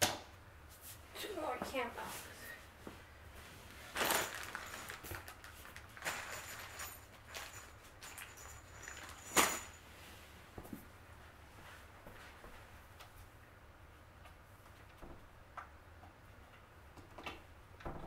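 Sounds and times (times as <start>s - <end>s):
scuffs and rustles of parts handled: 2.0s - 13.3s.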